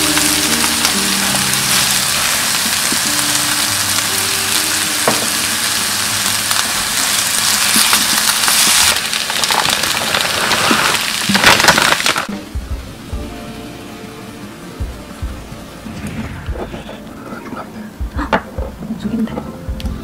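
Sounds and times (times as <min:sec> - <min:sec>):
rice sizzling in a frying pan: 0:00.0 - 0:12.5.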